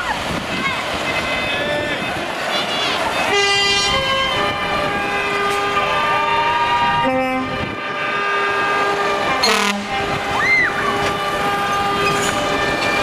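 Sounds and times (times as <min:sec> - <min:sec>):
truck air horns: 0:03.3 - 0:12.6.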